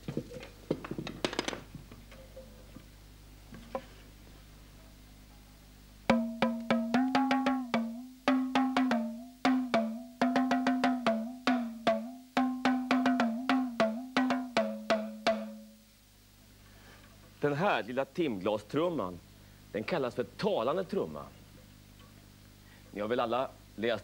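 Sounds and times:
talking drum pitched beats: 6.1 - 15.6.

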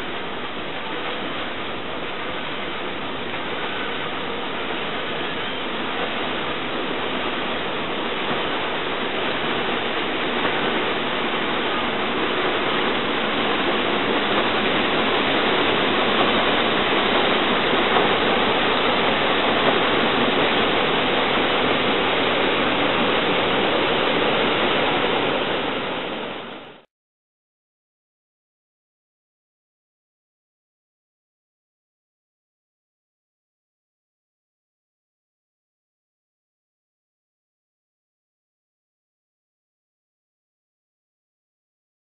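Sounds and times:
paddle wheels churning water: 0.0 - 26.8.

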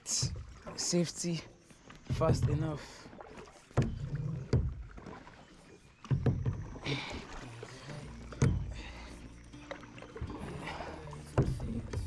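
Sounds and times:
paddle strokes in water: 0.0 - 12.0
dull knocks on kayak: 3.7 - 5.2, 6.0 - 6.8, 8.3 - 8.9, 11.3 - 12.0.

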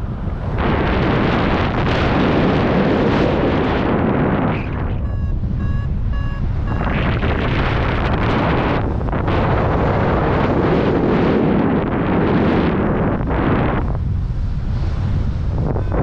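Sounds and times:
wind rushing over microphone: 0.0 - 16.0
variometer beeping: 4.8 - 8.9, 15.6 - 16.0.

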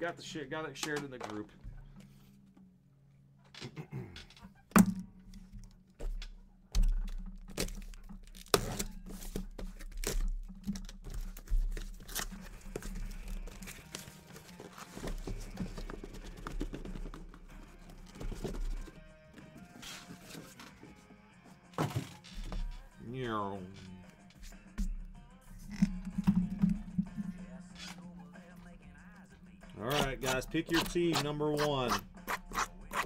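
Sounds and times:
cardboard tearing and scraping: 7.5 - 19.0
boxes knocking and thudding down: 12.8 - 19.1, 21.8 - 22.8.

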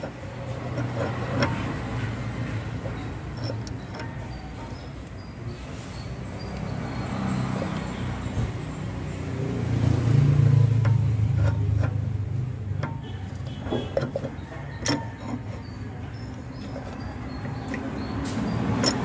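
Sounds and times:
vehicle engine rumbling: 0.0 - 19.0
light metallic clicks and knocks: 10.4 - 19.0.

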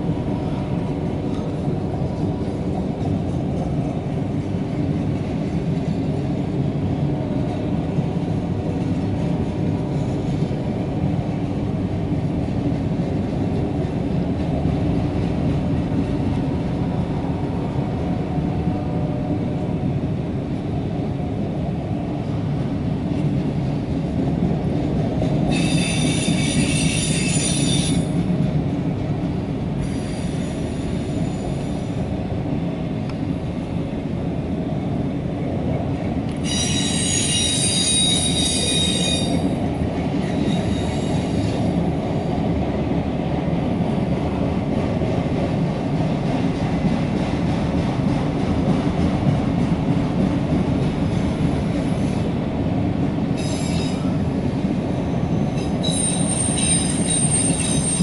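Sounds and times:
train wheels rumbling on rail: 0.0 - 58.0
high wheel squeal: 25.5 - 28.1, 36.4 - 39.5, 40.2 - 41.6, 55.6 - 58.0.

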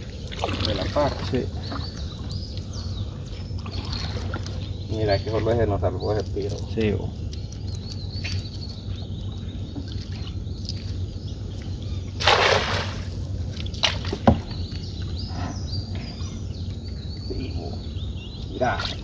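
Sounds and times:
net splashing on water: 12.2 - 14.4.

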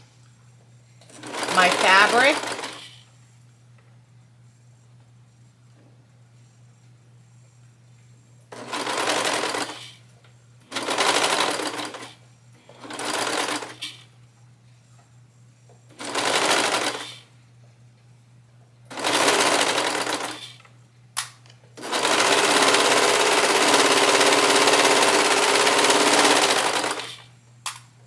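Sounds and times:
serger stitching: 1.2 - 2.9, 8.6 - 9.8, 10.7 - 12.1, 21.8 - 27.2.

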